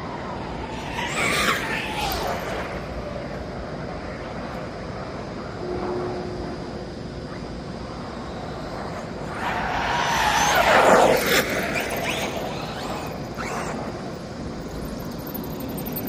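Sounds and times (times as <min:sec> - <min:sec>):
rc car motor whine: 0:00.0 - 0:04.6, 0:07.9 - 0:16.0
tyres on asphalt: 0:00.0 - 0:05.6, 0:07.3 - 0:16.0.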